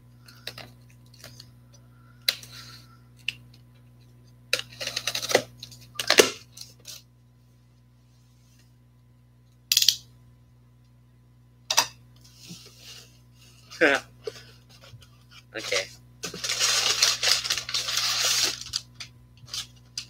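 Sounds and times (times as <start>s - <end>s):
cardboard rustling and scraping: 14.3s - 18.9s.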